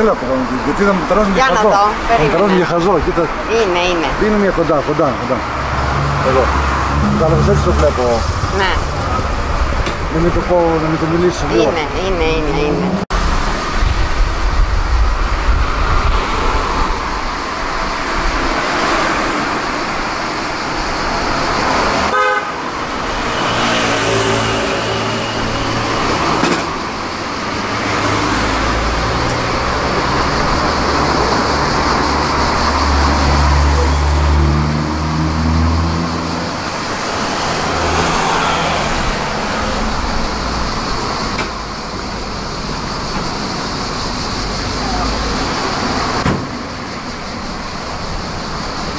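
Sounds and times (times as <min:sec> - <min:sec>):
vehicle engines passing: 0:00.0 - 0:48.9
deep engine hum: 0:05.4 - 0:10.2.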